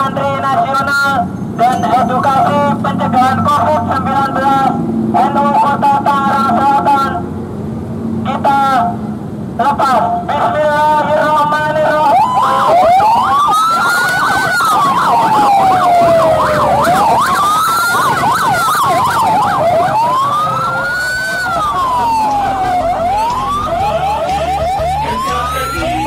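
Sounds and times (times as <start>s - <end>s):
fast warbling siren yelp: 1.2s - 7.3s, 10.1s - 26.0s
siren wail: 1.2s - 7.3s, 10.3s - 26.0s
rising siren whoops: 11.6s - 26.0s.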